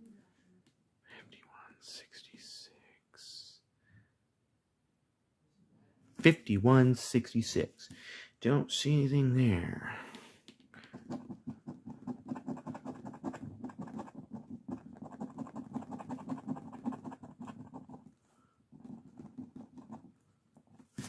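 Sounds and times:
scratching lottery ticket: 10.8s - 18.2s, 18.8s - 20.7s.

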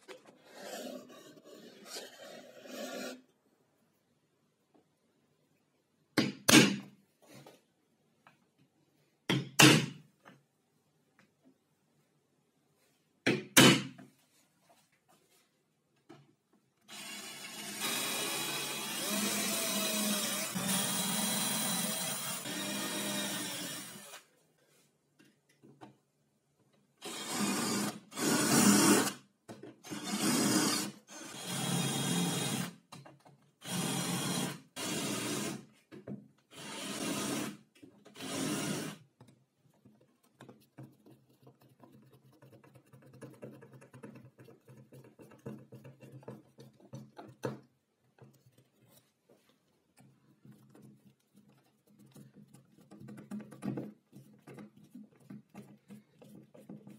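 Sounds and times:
power drill drilling into metal: 33.6s - 35.6s, 38.2s - 39.0s.

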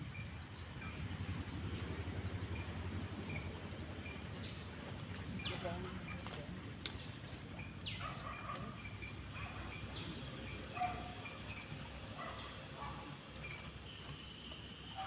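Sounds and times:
bird chirps: 0.0s - 15.0s.

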